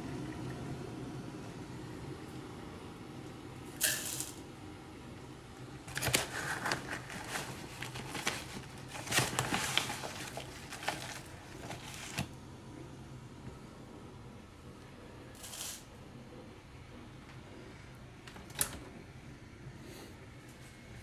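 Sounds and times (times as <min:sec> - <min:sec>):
low steady hum: 0:00.0 - 0:21.0
plastic pouch rustling: 0:05.9 - 0:12.4.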